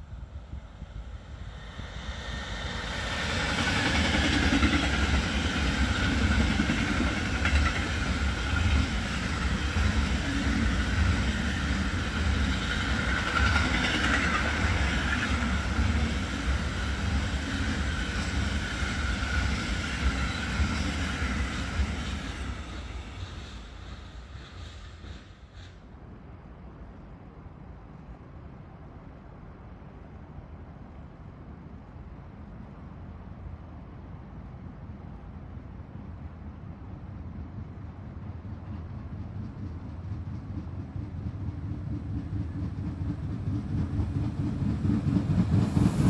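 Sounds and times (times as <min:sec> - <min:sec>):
freight train wheels on rails: 0:00.0 - 0:26.4, 0:35.9 - 0:46.0.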